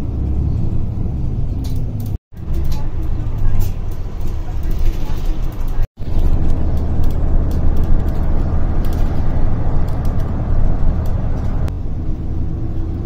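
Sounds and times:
bus engine and road rumble: 0:00.0 - 0:13.0
light rattling clicks: 0:01.5 - 0:11.7.

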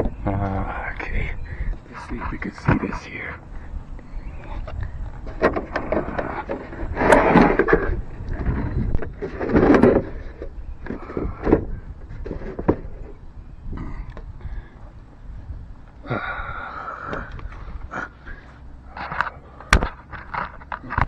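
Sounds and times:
case scraping and rustling: 0:04.3 - 0:13.2.

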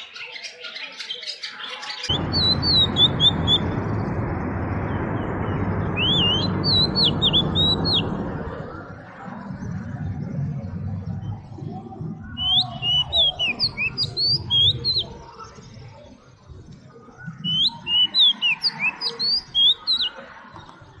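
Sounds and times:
bird singing whistled notes: 0:00.0 - 0:03.7, 0:06.0 - 0:08.3, 0:12.2 - 0:15.8, 0:17.2 - 0:20.3.

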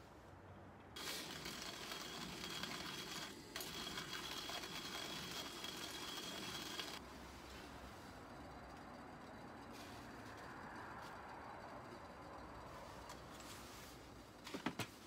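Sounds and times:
hand coffee mill grinding beans: 0:01.0 - 0:07.0.

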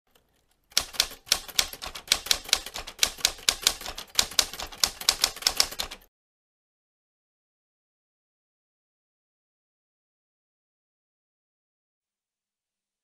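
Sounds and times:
typewriter keys clacking: 0:00.1 - 0:06.1.

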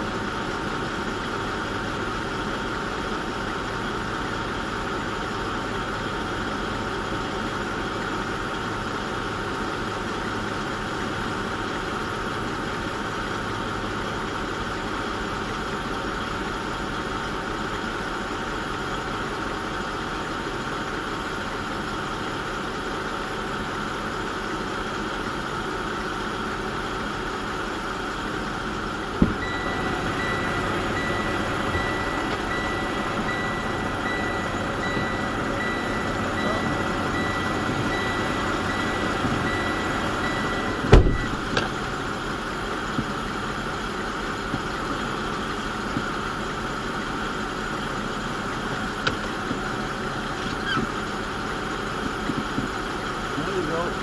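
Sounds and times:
truck engine idling: 0:00.0 - 0:54.0
reversing alarm beeping: 0:28.9 - 0:41.9.

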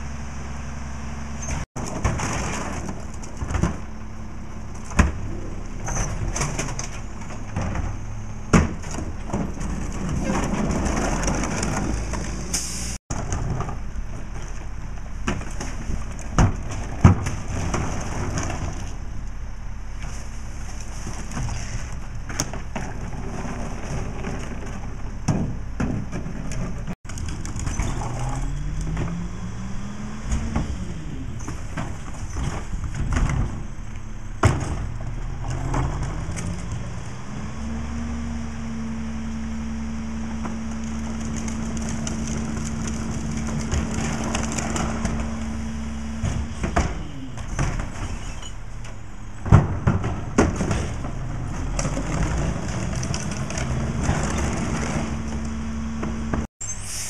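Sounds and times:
trash carts banging into hopper: 0:01.4 - 0:04.1, 0:04.7 - 0:19.2, 0:20.0 - 0:38.5, 0:39.2 - 0:56.5.

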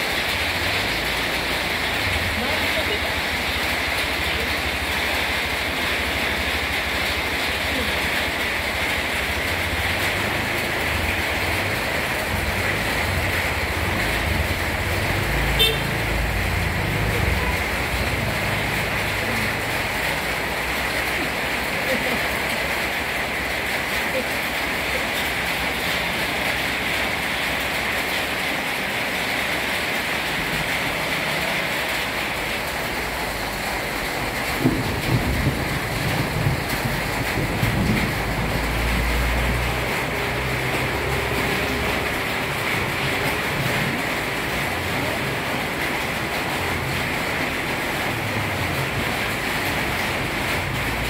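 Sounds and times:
rain hissing on pavement: 0:00.0 - 0:51.0
scooter engine: 0:00.3 - 0:23.6
horn toot: 0:15.5 - 0:16.1.

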